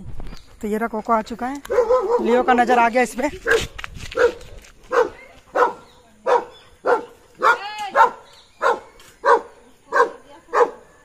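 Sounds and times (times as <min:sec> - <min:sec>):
dog barking: 0:01.7 - 0:02.5, 0:04.2 - 0:11.0.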